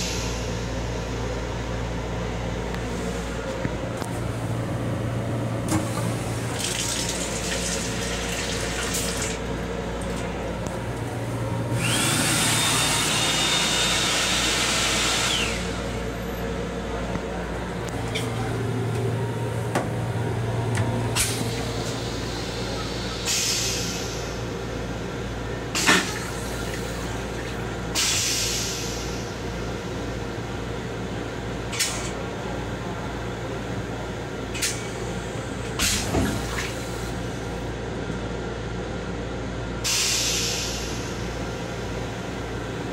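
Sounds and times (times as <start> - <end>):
train low hum: 0.0 - 42.9
hand dryer blowing: 11.8 - 15.8.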